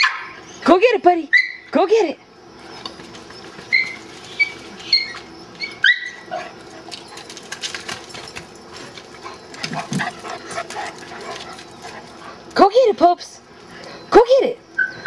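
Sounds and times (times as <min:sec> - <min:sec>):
dog whining: 0:03.6 - 0:06.6.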